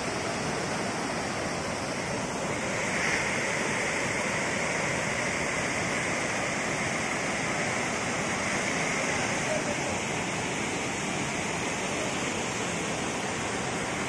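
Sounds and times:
running water rushing: 0.0s - 14.0s.

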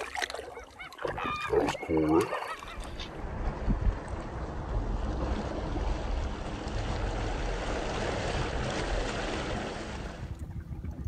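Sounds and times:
wind blowing across microphone: 3.0s - 11.0s.

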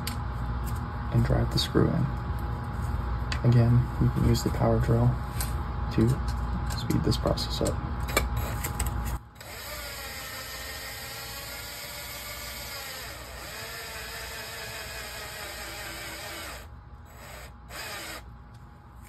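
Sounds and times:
cordless drill whirring: 9.4s - 18.3s.

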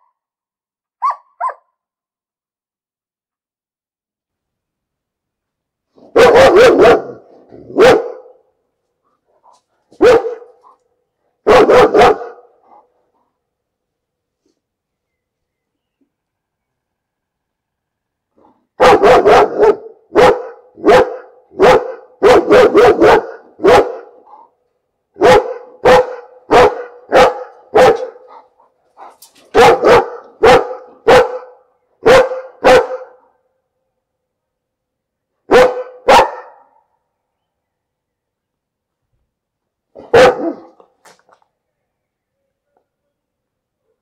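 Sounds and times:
dog barking: 1.0s - 1.8s, 6.0s - 8.4s, 9.9s - 10.8s, 11.4s - 12.9s, 18.8s - 24.5s, 25.2s - 33.4s, 35.5s - 36.9s, 39.9s - 40.8s.

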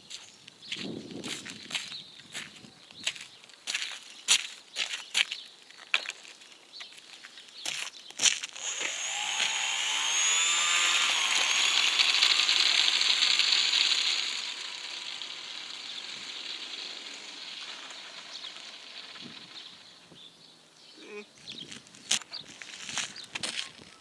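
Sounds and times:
electric motor and propeller whining: 8.4s - 20.4s.

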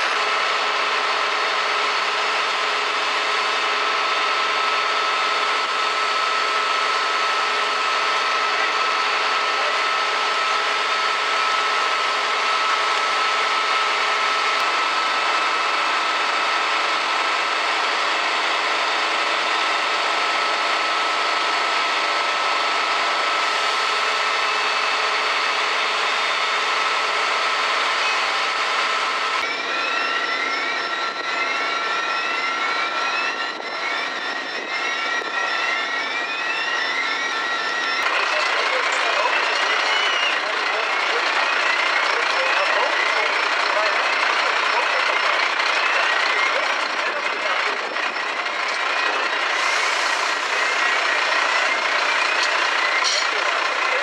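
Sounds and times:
electronic alarm rising tone: 0.0s - 54.0s
large engine running with whine: 0.0s - 54.0s.

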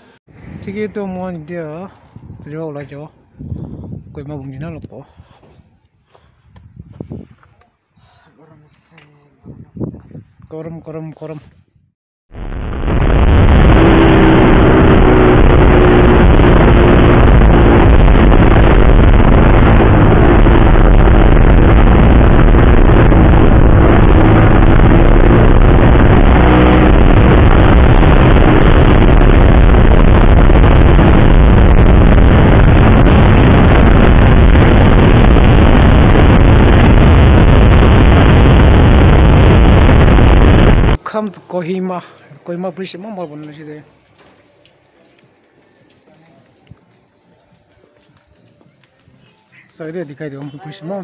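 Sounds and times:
wind rushing over microphone: 0.0s - 7.4s, 9.4s - 10.5s, 11.7s - 41.0s
motorcycle engine hum: 13.0s - 41.0s.

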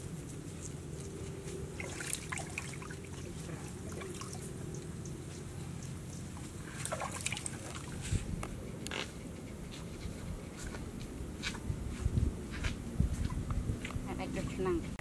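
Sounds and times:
low background noise: 0.0s - 15.0s
wet handling sounds: 1.7s - 5.5s.

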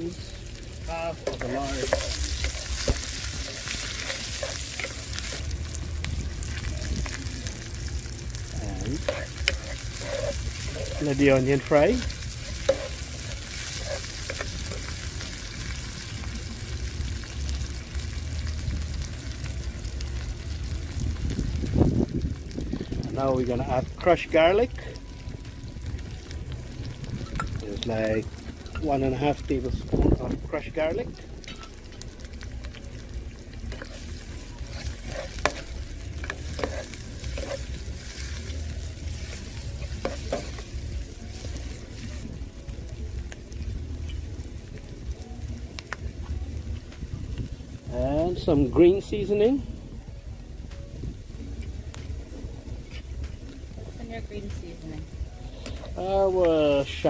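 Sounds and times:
onion sizzling in hot oil: 0.0s - 57.0s
utensil scraping pan: 8.9s - 14.9s, 33.7s - 38.4s.

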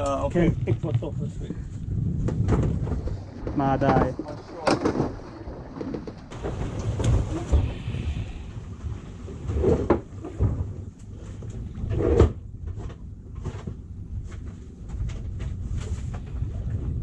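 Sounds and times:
wind on microphone: 0.0s - 12.9s, 14.0s - 17.0s
handling knocks and thumps: 2.2s - 7.5s.

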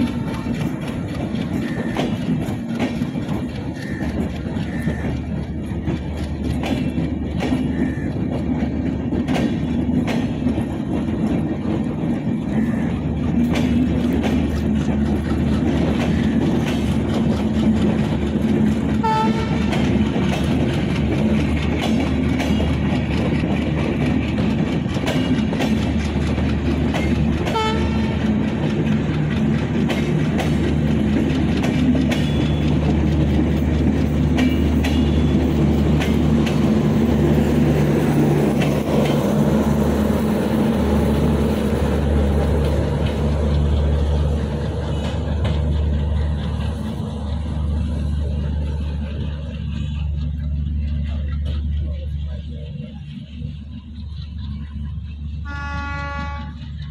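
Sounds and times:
train wheels clacking over rail joints: 0.0s - 56.9s.

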